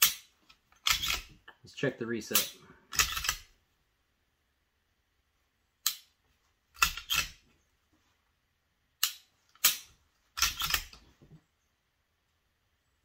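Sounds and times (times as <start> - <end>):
pistol trigger and slide clicks: 5.8 - 6.1, 9.0 - 11.0.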